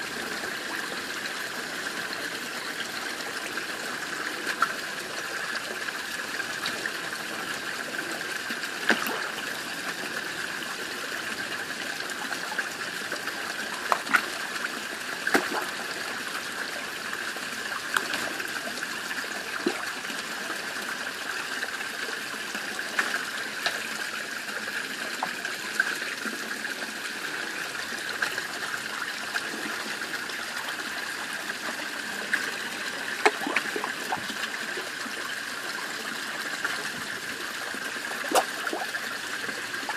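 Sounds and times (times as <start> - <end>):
water trickling in a pond: 0.0 - 39.9
fish splashing at the surface: 8.8 - 9.4, 15.2 - 15.8, 33.1 - 34.4, 38.2 - 39.9.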